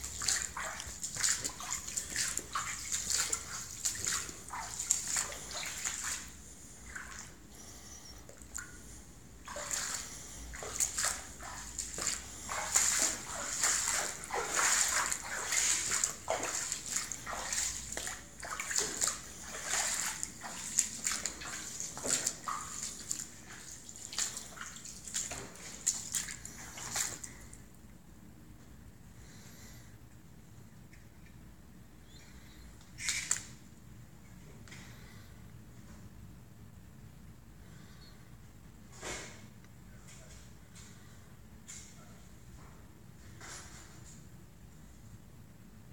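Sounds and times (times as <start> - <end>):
footsteps splashing through water: 0.0 - 7.4, 9.4 - 27.7.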